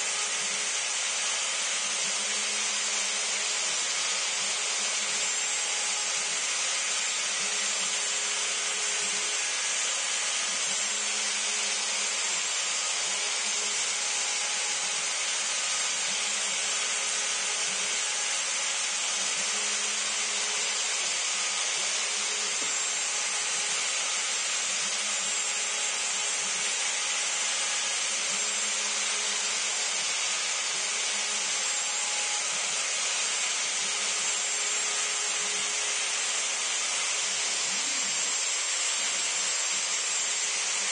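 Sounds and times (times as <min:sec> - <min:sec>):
router spindle high whine: 0:00.0 - 0:40.9.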